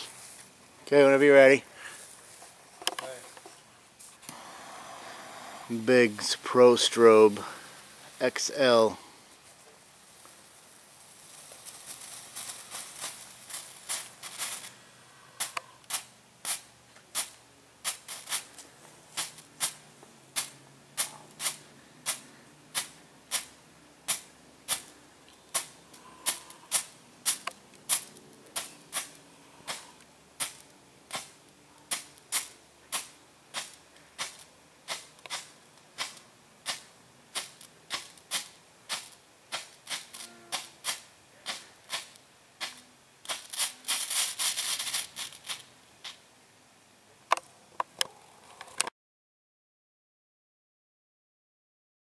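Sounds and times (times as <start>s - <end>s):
rapid firework crackling: 4.3s - 46.2s
strobe firework popping: 25.5s - 46.2s.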